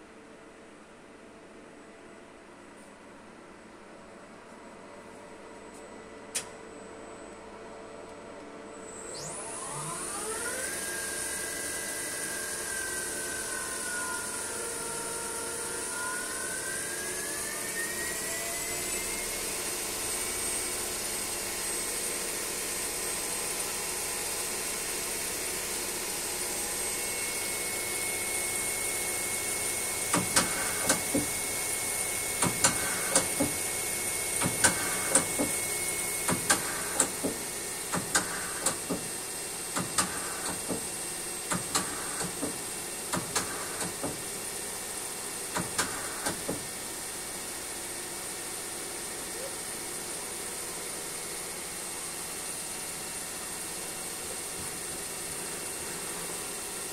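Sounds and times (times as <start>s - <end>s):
lathe machine hum: 9.1s - 44.6s.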